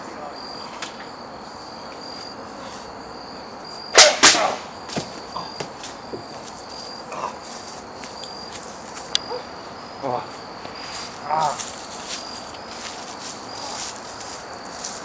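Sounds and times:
crickets chirping: 0.0 - 15.0
sharp smacks of wrestlers: 4.0 - 5.1.

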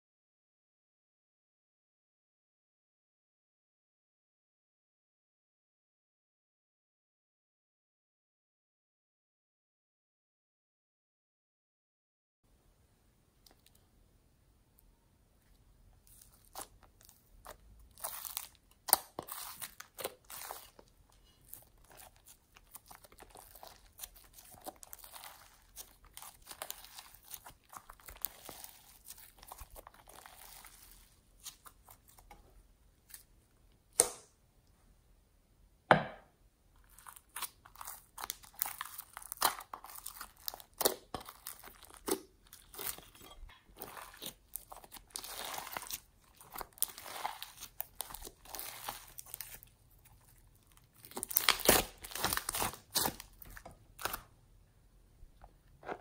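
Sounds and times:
slime squishing and crackling: 16.0 - 32.4, 36.8 - 54.3
slime popping: 43.8 - 49.6, 51.0 - 54.2.

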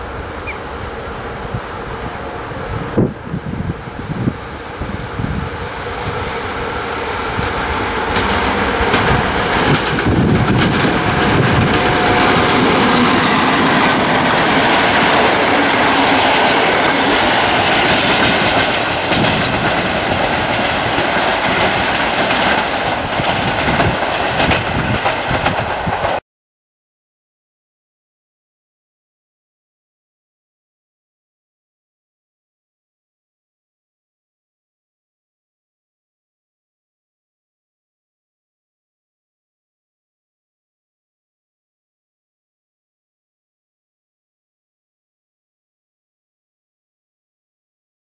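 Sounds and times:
train wheel and rail noise: 0.0 - 26.2.

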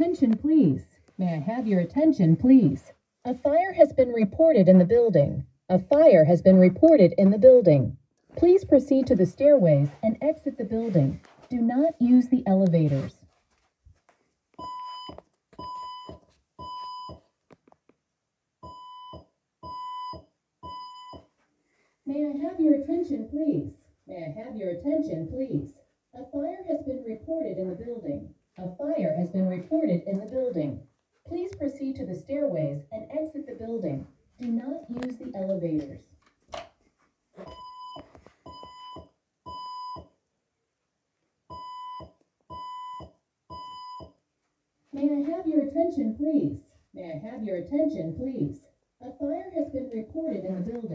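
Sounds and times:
spoken evacuation messages: 0.0 - 13.3, 22.1 - 36.1, 44.9 - 50.9
high-pitched alarm beeps: 14.6 - 17.2, 18.6 - 21.3, 37.5 - 40.1, 41.5 - 44.2.

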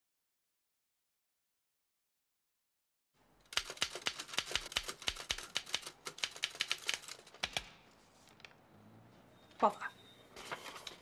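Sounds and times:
manual typewriter typing: 3.5 - 7.7.

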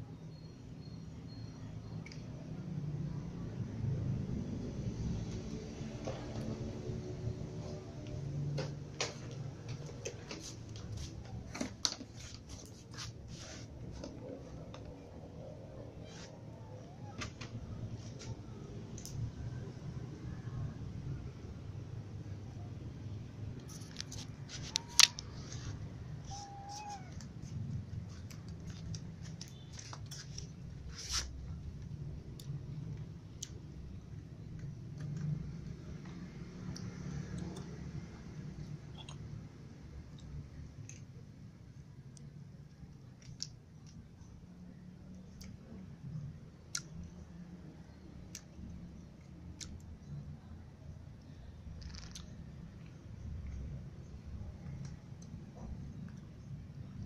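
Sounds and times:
thin high call: 24.5 - 27.1.

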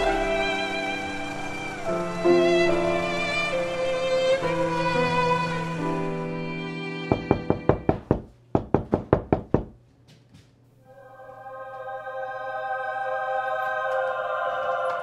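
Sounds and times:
film music: 0.0 - 8.2, 10.8 - 15.0
rapid knocking on a door: 7.1 - 9.8.

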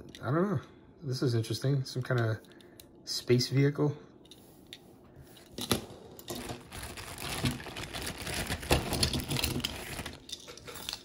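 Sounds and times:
toy cars clicking and rattling: 7.4 - 11.0.

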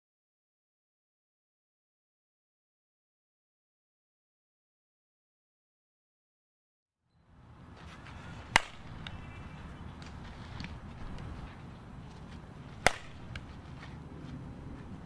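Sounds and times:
bat hitting ball: 7.8 - 11.4, 12.3 - 14.0.

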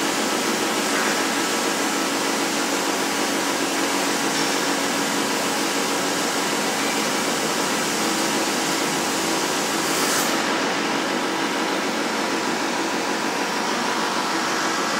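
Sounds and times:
plasma cutter hissing: 0.7 - 12.5.

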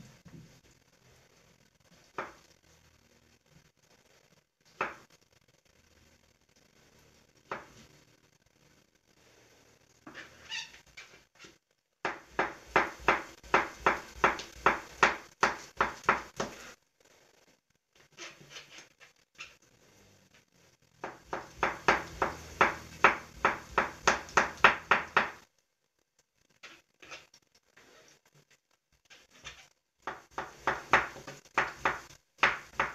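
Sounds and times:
knife chopping on plastic board: 12.1 - 16.6, 21.0 - 25.4, 30.1 - 32.9.

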